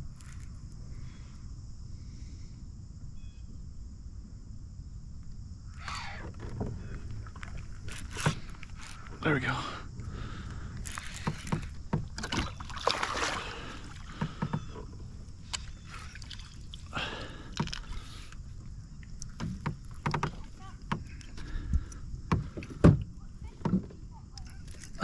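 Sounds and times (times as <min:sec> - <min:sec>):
net and rod knocking on kayak: 0:10.9 - 0:15.0, 0:19.3 - 0:21.5, 0:22.2 - 0:24.0
fish splashing at the surface: 0:12.2 - 0:14.4.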